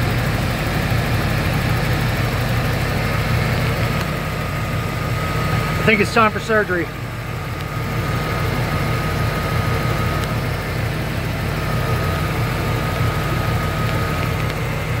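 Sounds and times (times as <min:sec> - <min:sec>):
car engine idling: 0:00.0 - 0:15.0
faint high whine: 0:04.7 - 0:10.7.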